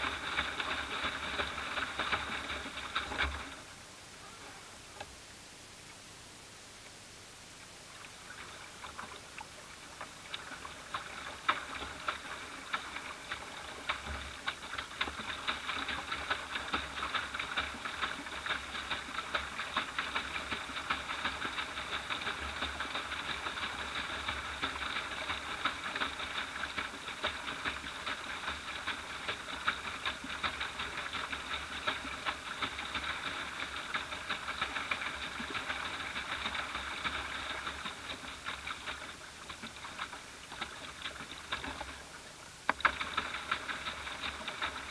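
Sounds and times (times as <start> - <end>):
water splashing against boat bow: 0.0 - 3.7, 7.8 - 44.9.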